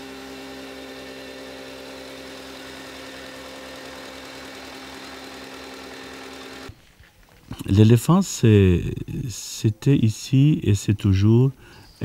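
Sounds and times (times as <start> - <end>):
small engine droning: 0.0 - 6.8.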